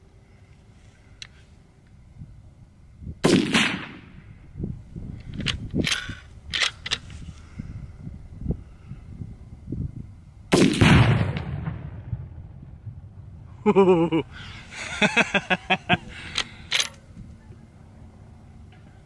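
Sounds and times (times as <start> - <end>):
rifle shot and explosion: 3.2 - 4.2, 10.5 - 13.2
man laughing: 13.6 - 16.3.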